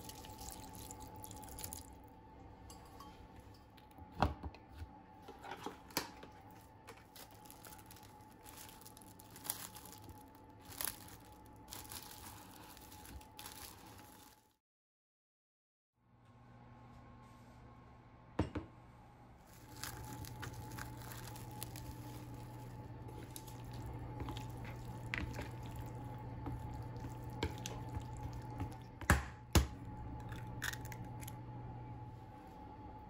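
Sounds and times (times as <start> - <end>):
low hum: 16.2 - 33.0.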